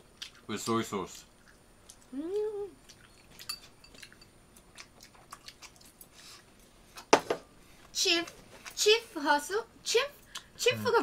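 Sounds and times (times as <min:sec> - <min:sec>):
person chewing: 0:00.1 - 0:00.5, 0:01.4 - 0:06.7
person humming: 0:02.1 - 0:02.8, 0:10.6 - 0:11.0.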